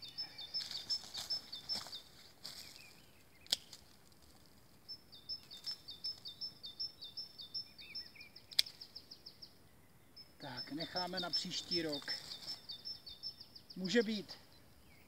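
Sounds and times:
songbird chirping: 0.0 - 15.0
pruning shears snipping: 3.4 - 3.8, 8.5 - 8.8.

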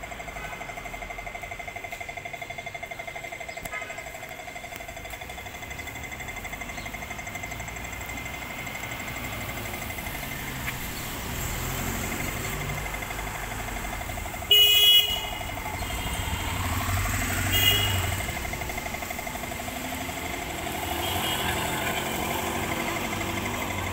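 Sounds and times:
rumble of passing vehicles: 0.0 - 23.9
vehicle horns honking: 14.4 - 16.6, 17.2 - 18.4, 20.9 - 22.1.

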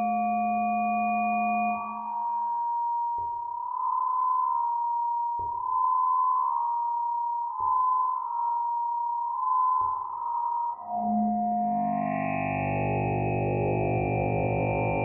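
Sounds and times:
high feedback tone: 9.2 - 15.0.

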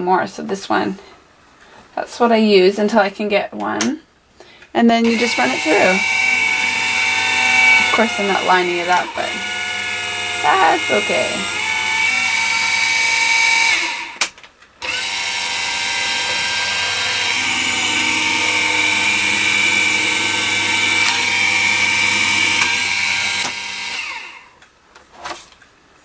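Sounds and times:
die-cutting machine motor whining: 5.0 - 24.5.

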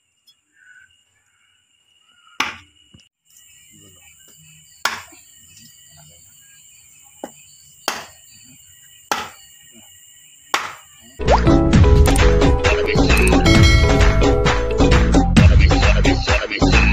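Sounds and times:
knife chopping on wooden board: 9.1 - 9.4, 10.5 - 10.8.

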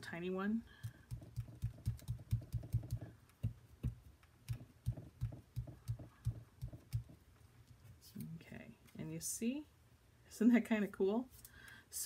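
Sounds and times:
ink dauber tapping on cardstock: 1.1 - 7.2.

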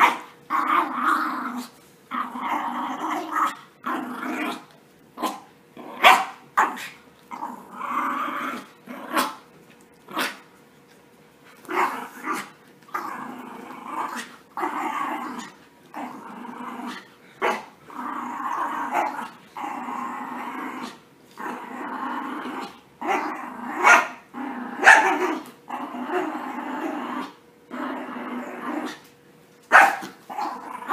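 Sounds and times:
puppies play-growling: 0.0 - 30.9
puppy barking: 6.0 - 6.9, 23.8 - 24.2, 24.8 - 25.4, 29.7 - 30.2.

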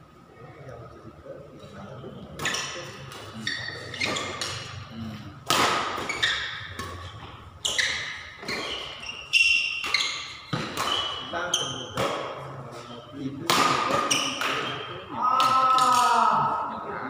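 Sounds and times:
rackets hitting shuttlecock: 5.4 - 12.4, 13.4 - 16.2.

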